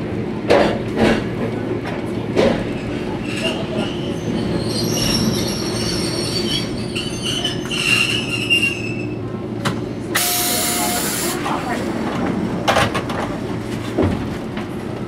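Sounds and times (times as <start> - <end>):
tram running gear hum: 0.0 - 15.0
steel wheels squealing: 2.8 - 9.3.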